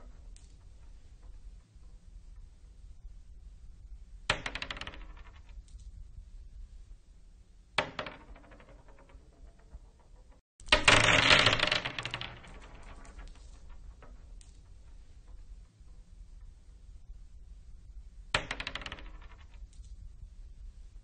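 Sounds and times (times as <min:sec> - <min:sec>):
glass marbles bouncing on wooden floor: 0:04.3 - 0:05.7, 0:07.8 - 0:15.4, 0:18.4 - 0:19.9.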